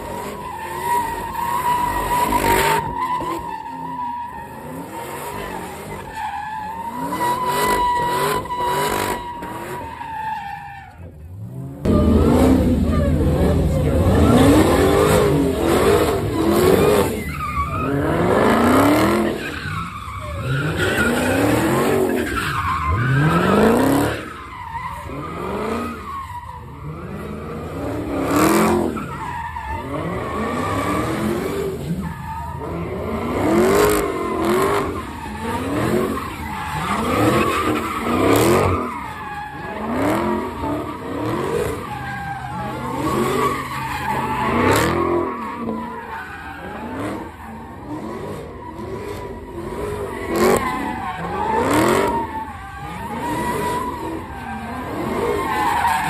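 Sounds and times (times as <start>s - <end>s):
tires squealing on pavement: 0.0s - 56.0s
car engine revving: 11.2s - 56.0s.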